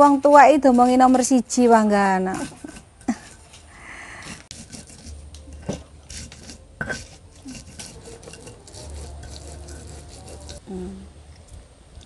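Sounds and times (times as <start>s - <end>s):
stone pestle grinding in mortar: 2.2s - 10.6s.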